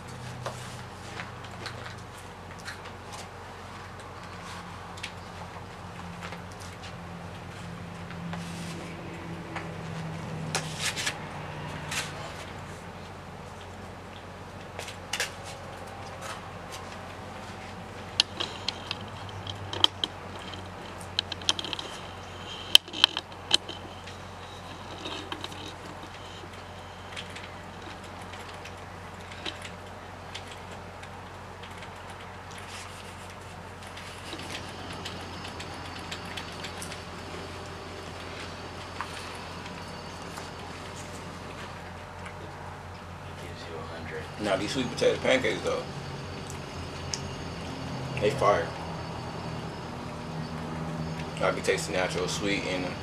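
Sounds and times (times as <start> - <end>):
background hum and hiss: 0.0 - 53.0
man chewing: 11.7 - 43.3.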